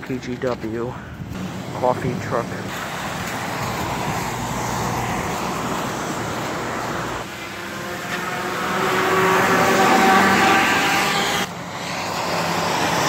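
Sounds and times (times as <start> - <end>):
vehicle engine rumble: 0.0 - 13.0
tyre hiss on wet road: 2.7 - 8.4.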